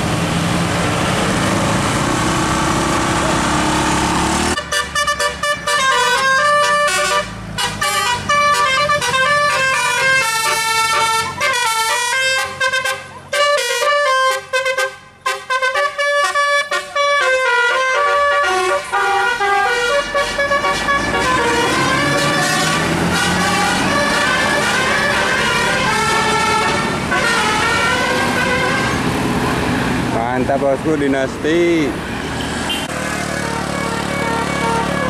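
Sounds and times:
musical bus air horn: 4.5s - 29.1s, 32.7s - 35.0s.

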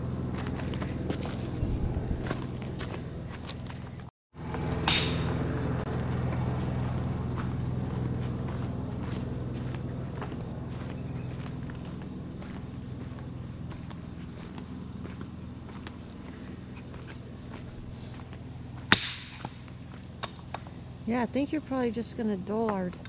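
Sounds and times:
insects chorus: 0.0s - 23.0s
sharp knock: 4.8s - 5.3s.

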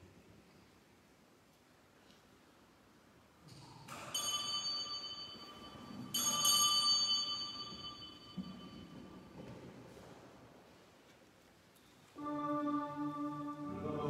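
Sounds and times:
bell ringing: 4.0s - 9.4s.

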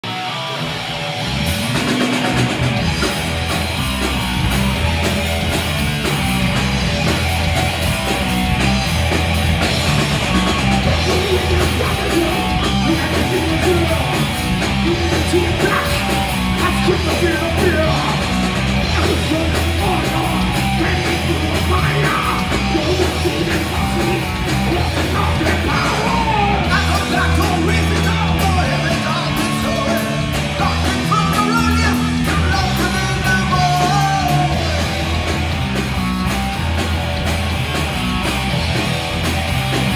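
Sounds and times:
heavy metal band playing live: 0.0s - 39.9s
person singing: 10.2s - 35.0s.

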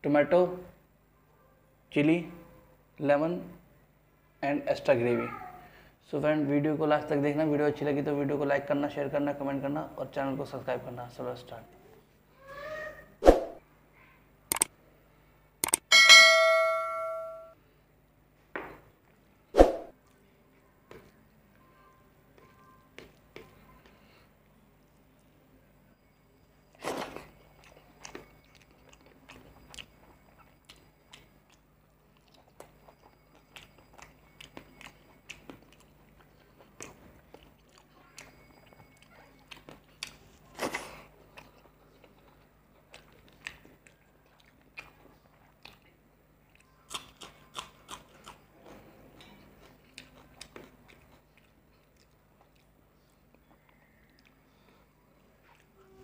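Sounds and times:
mouth chewing: 26.7s - 56.0s.

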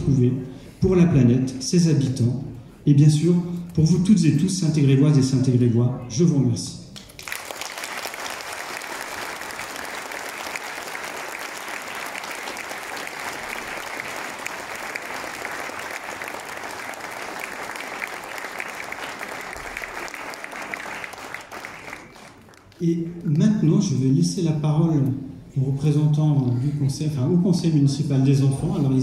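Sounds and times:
crowd applauding: 7.0s - 22.8s.

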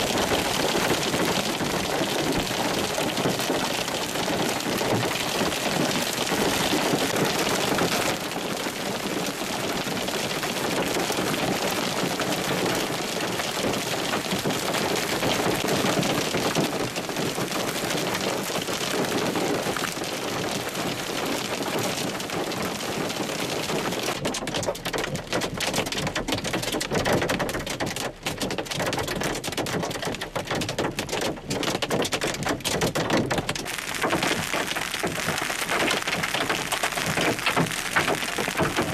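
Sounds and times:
hail and rain pelting down: 0.0s - 38.9s
sharp hailstone hits: 26.9s - 38.9s.

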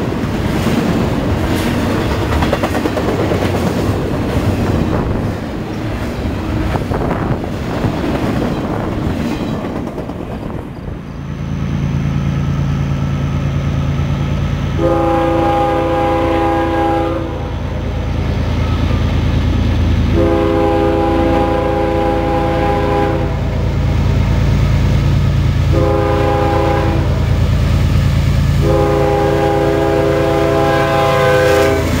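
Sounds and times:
locomotive air horn blasts: 14.8s - 17.6s, 20.1s - 23.5s, 25.7s - 27.3s, 28.6s - 32.0s.

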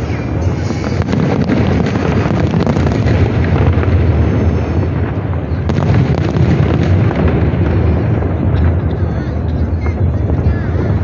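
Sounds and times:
fireworks popping and crackling: 0.0s - 11.0s.

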